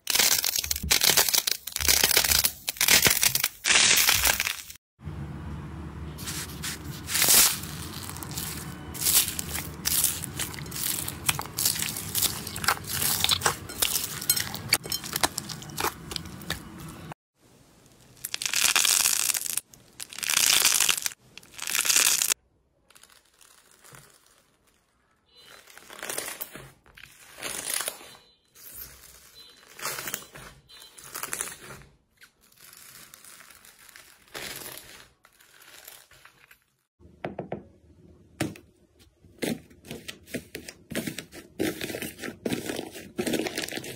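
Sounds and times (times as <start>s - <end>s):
foam-bead slime crunching: 0.0s - 4.8s, 6.2s - 17.2s, 18.0s - 37.0s, 39.4s - 43.9s
hand scraping across bubbly slime: 6.2s - 11.0s.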